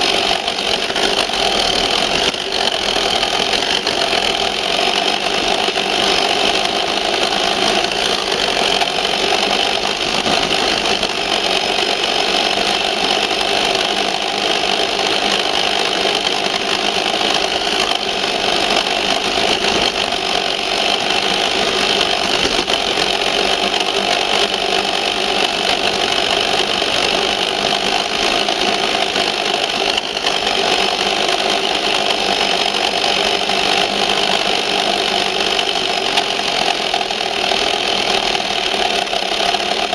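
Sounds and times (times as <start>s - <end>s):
plastic body rattling: 0.0s - 13.3s, 16.1s - 28.4s
toy truck motor whining: 0.0s - 39.9s.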